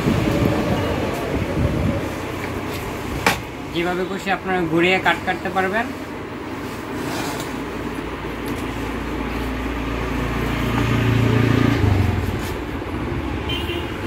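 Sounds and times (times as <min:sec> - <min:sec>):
motor vehicle passing: 0:06.4 - 0:12.9.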